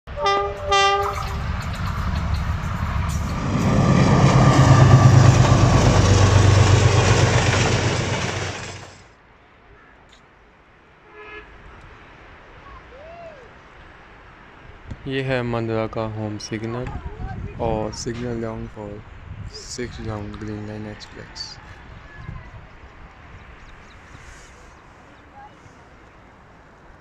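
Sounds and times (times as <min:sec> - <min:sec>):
locomotive horn: 0:00.1 - 0:01.5, 0:11.0 - 0:11.7
locomotive engine drone: 0:00.1 - 0:09.1
train wheels on rails: 0:00.3 - 0:09.1.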